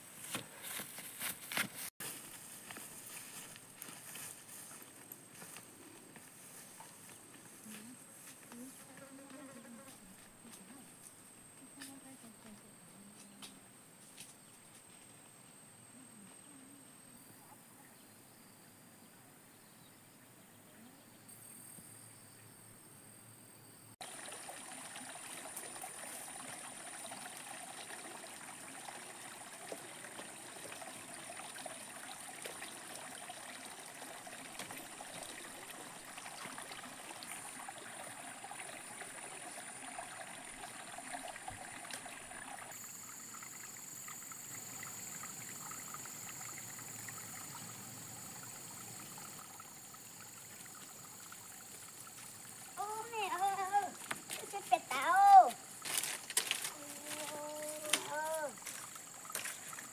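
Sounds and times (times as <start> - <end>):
stream running over rocks: 24.0 - 59.9
high insect drone: 42.6 - 59.9.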